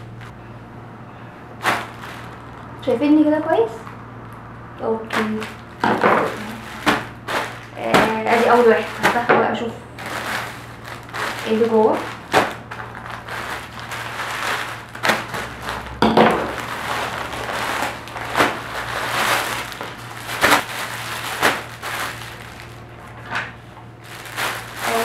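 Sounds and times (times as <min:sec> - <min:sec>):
plastic crinkling and rustling: 0:01.6 - 0:02.8, 0:05.0 - 0:25.0.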